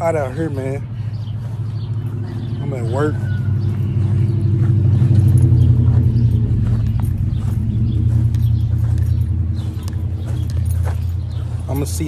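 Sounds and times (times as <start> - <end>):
loud low rumble: 1.4 - 12.0.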